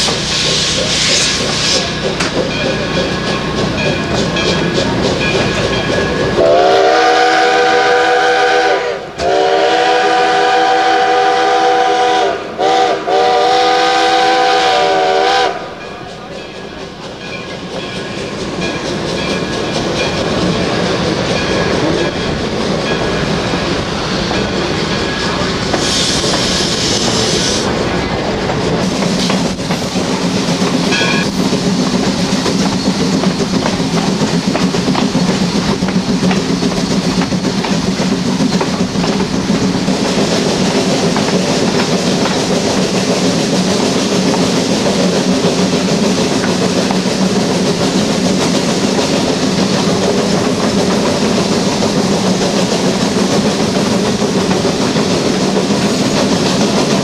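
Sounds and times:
steam locomotive whistle: 0.0 - 2.1, 5.6 - 15.8, 25.2 - 27.7
moving train rumble and clatter: 0.0 - 57.0.

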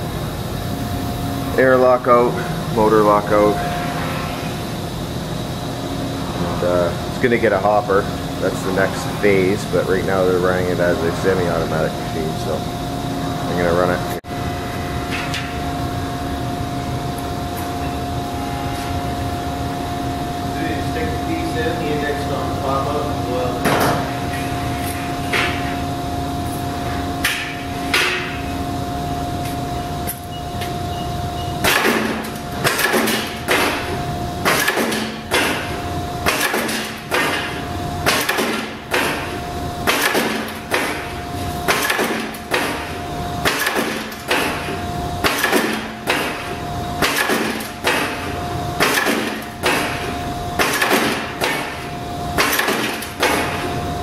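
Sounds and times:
press motor humming: 0.0 - 54.0
punch press striking: 31.6 - 53.7.

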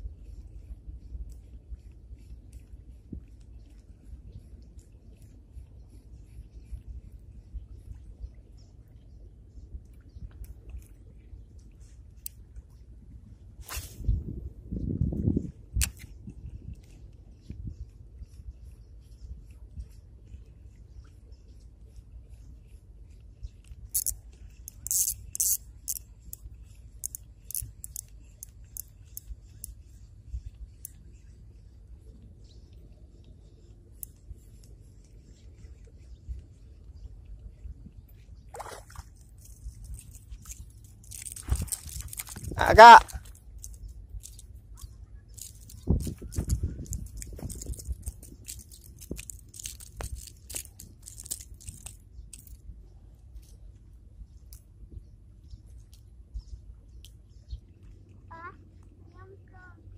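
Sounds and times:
low steady rumble: 0.0 - 59.9
fishing reel clicking: 23.9 - 29.8, 40.5 - 42.6
crunching and crackling clicks: 39.2 - 54.7.

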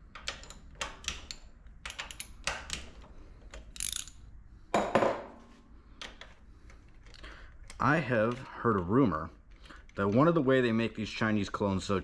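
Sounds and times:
socket ratchet clicking: 0.1 - 4.2.

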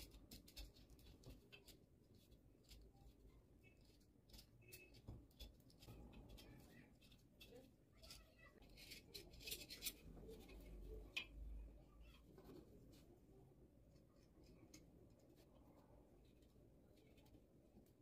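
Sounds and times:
craft knife scraping: 3.6 - 10.7.

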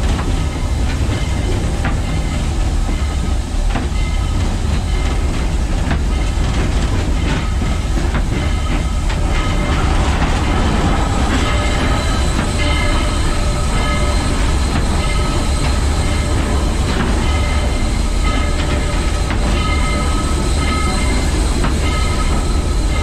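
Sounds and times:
steam locomotive rumble: 0.0 - 23.0
wheels clicking over rails: 0.0 - 23.0
high metallic tones: 7.2 - 23.0.

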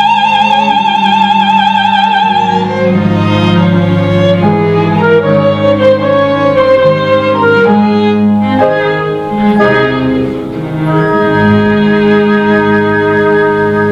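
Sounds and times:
classical ensemble playing chords: 0.0 - 13.9.

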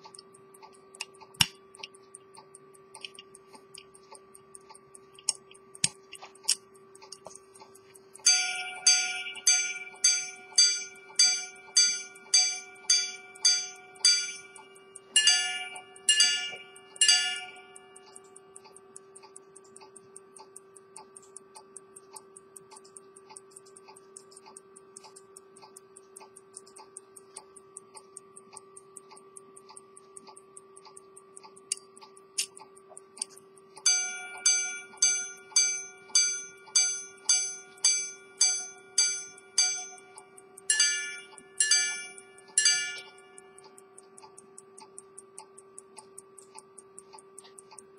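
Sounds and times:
pocket watch ticking: 0.0 - 47.9
repeater gong chimes: 8.3 - 14.6, 15.2 - 17.7.

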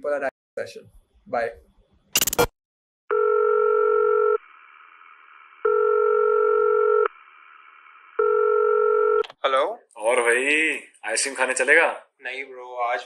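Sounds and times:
electronic telephone ringing: 3.1 - 4.4, 5.6 - 7.1, 8.2 - 9.2.

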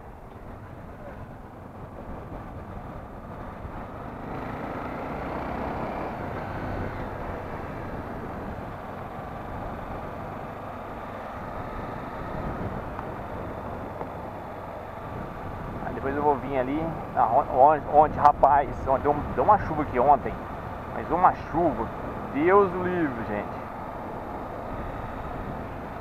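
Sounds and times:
motorcycle engine: 0.0 - 26.0
wind and road noise: 0.0 - 26.0.

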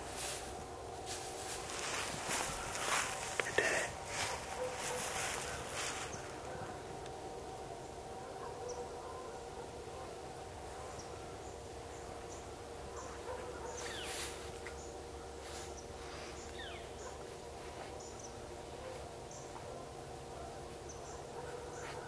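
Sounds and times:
coyotes yipping and howling: 0.8 - 14.2, 16.5 - 22.0.

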